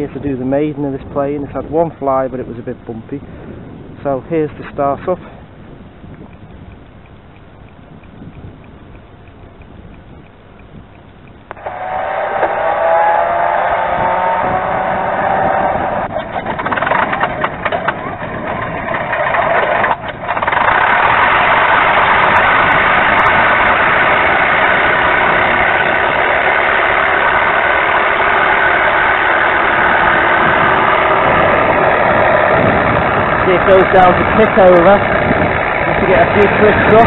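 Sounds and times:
spinning propeller: 6.1 - 37.0
simulated aero-engine starting: 11.2 - 37.0.

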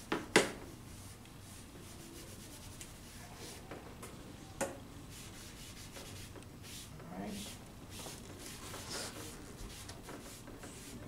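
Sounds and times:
charcoal rubbing on paper: 0.9 - 3.6, 5.1 - 11.0.

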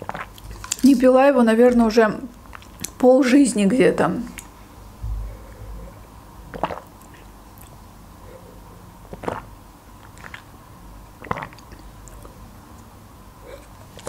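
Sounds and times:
person swallowing gulps: 4.4 - 7.8, 9.1 - 10.5, 11.2 - 12.4.

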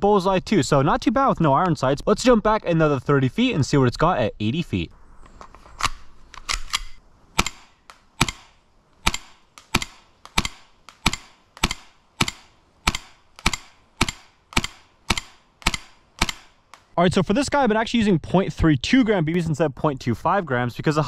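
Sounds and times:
airsoft pistol shots: 7.4 - 16.9.

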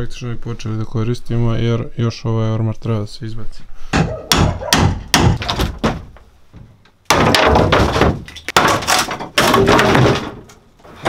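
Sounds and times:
knocks and thuds on wooden boards: 3.9 - 11.0
wooden panels cracking and banging: 4.0 - 11.0.

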